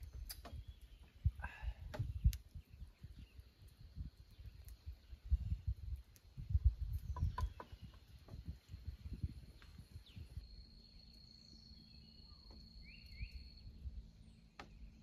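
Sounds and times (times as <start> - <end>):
rising bird chirps: 6.6 - 15.0
insect high tone: 10.1 - 14.0.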